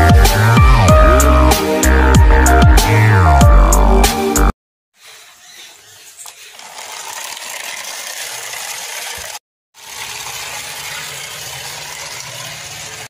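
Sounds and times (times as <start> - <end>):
toy electric motor whirring: 6.1 - 9.3.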